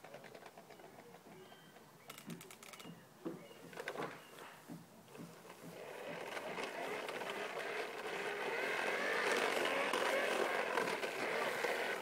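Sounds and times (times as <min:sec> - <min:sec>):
toy lawnmower clicking and rattling: 0:00.0 - 0:01.3, 0:02.1 - 0:02.9, 0:05.3 - 0:12.0.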